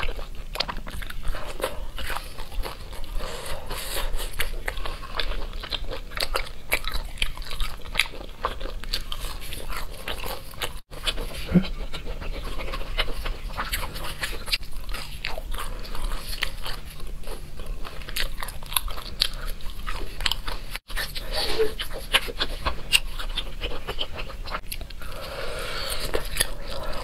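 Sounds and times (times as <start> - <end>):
biting and chewing sausage: 0.0 - 27.0.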